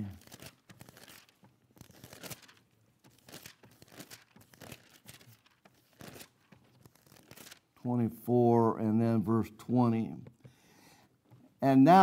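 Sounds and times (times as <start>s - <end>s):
book pages turning: 0.0s - 7.9s.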